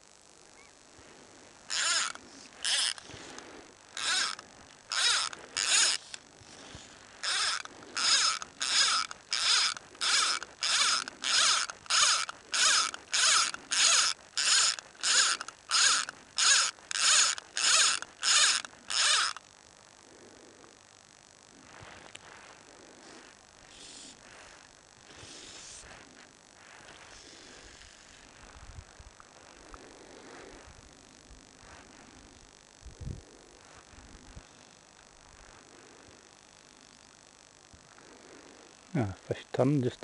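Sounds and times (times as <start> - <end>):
fly line stripped through rod guides: 1.7 - 19.4.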